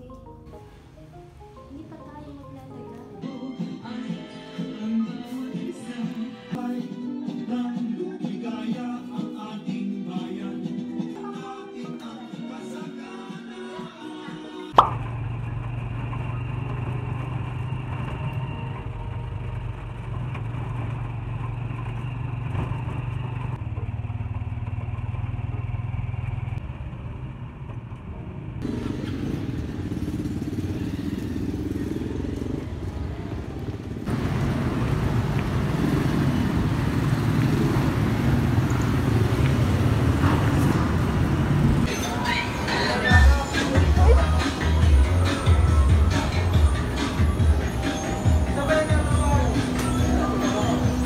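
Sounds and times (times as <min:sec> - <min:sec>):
sharp knock: 0:14.8 - 0:15.0
vehicle engine running: 0:14.8 - 0:41.9, 0:42.7 - 0:51.0.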